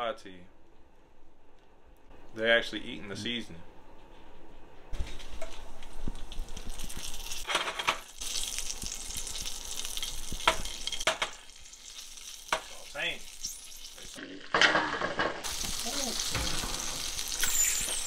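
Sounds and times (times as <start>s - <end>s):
worms sizzling in hot oil: 5.5s - 14.5s, 15.4s - 18.0s.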